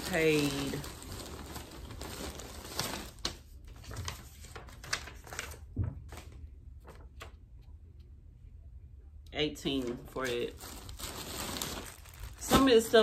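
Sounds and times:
packaging rustling: 0:00.0 - 0:07.0, 0:09.8 - 0:13.0.

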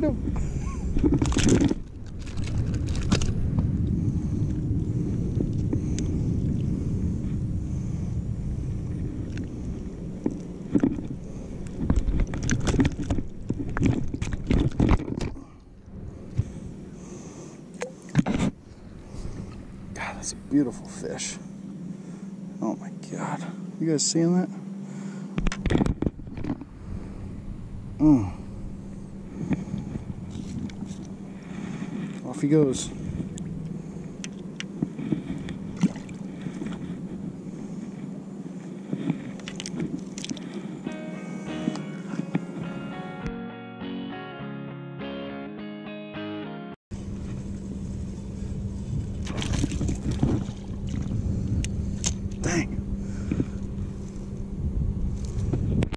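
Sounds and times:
steady low hum: 0:00.0 - 0:43.4, 0:46.9 - 0:55.9
fish knocking and flapping in hand: 0:10.2 - 0:15.4, 0:49.2 - 0:51.1.

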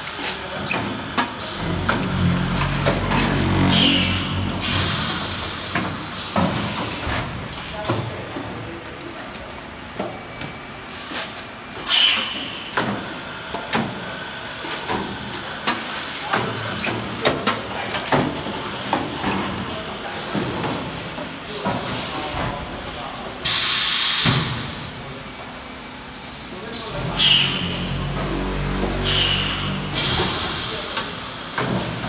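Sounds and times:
loud hiss of released air: 0:03.7 - 0:06.4, 0:10.9 - 0:12.7, 0:23.4 - 0:24.6, 0:27.2 - 0:27.8, 0:29.0 - 0:31.4.

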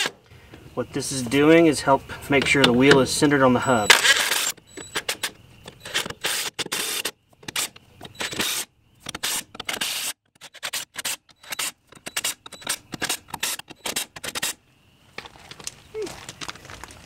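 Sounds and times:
impact wrench bursts: 0:03.8 - 0:14.6.

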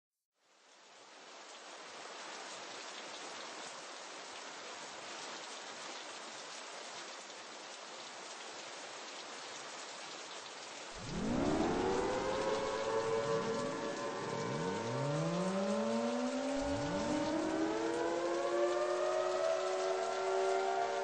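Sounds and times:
rain hissing: 0:10.6 - 0:21.0.

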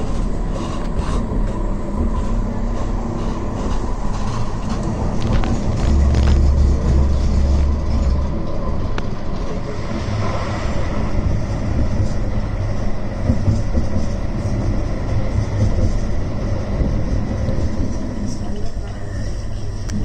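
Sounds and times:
tram wheels rumbling on rail: 0:00.0 - 0:20.0.

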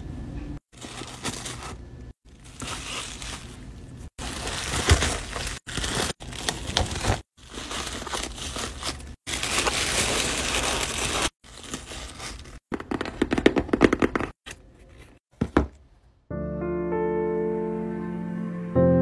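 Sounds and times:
bubble wrap and plastic crinkling: 0:00.7 - 0:13.0
tissue paper rustling: 0:00.8 - 0:12.6.

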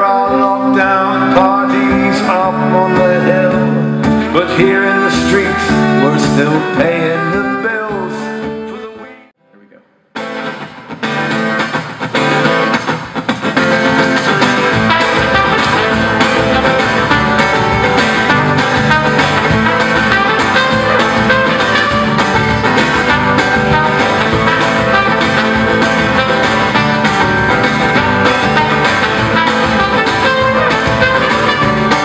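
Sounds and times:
bass guitar: 0:00.0 - 0:09.3, 0:10.2 - 0:32.0
acoustic guitar: 0:00.0 - 0:09.4, 0:10.1 - 0:32.0
trumpet: 0:04.6 - 0:09.2, 0:14.6 - 0:32.0
percussion beat: 0:12.8 - 0:32.0.

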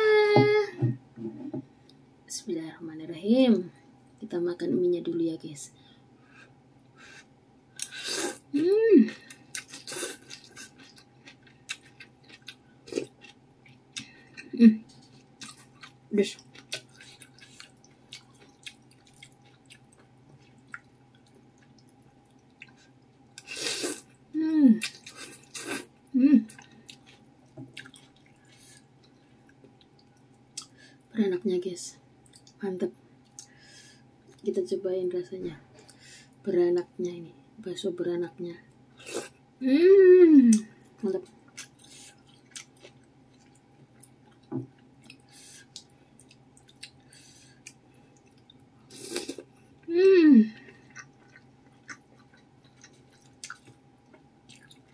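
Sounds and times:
wet chewing noises: 0:14.9 - 0:23.5, 0:26.5 - 0:30.7, 0:50.6 - 0:54.9.

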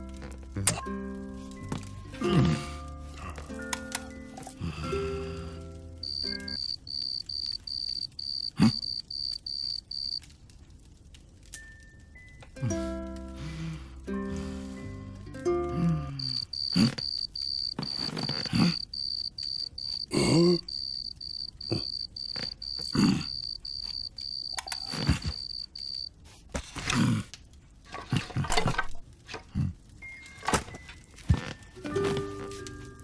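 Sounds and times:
cricket chirping: 0:06.0 - 0:10.2, 0:16.2 - 0:26.1
cartoon bear grunting: 0:20.1 - 0:20.7.

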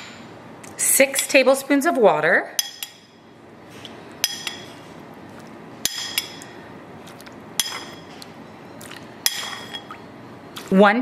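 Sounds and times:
spoon clinking against bowl: 0:02.6 - 0:03.2, 0:04.2 - 0:04.7, 0:05.8 - 0:06.6, 0:07.6 - 0:08.2, 0:09.2 - 0:10.0.

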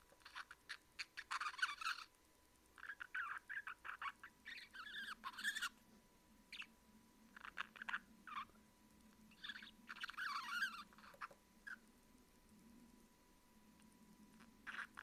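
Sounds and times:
budgerigar squeaky chirps: 0:00.2 - 0:02.1, 0:02.8 - 0:05.8, 0:06.5 - 0:06.7, 0:07.4 - 0:08.6, 0:09.3 - 0:11.8, 0:14.6 - 0:15.0.

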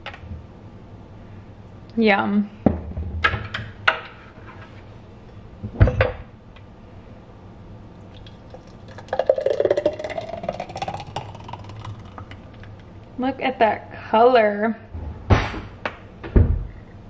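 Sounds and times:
smoothie pouring into glass: 0:08.0 - 0:13.0.

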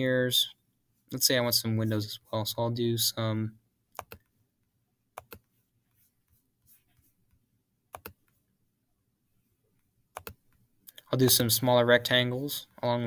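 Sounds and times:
computer mouse clicks: 0:04.0 - 0:04.3, 0:05.2 - 0:05.5, 0:07.9 - 0:08.4, 0:10.1 - 0:11.1.

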